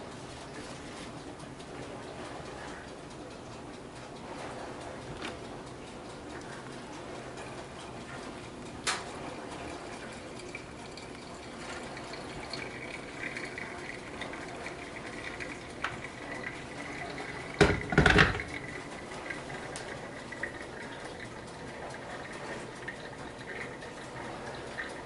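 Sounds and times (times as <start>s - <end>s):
water pouring onto coffee grounds: 9.2s - 25.0s
kettle knocking on its base: 17.6s - 18.6s.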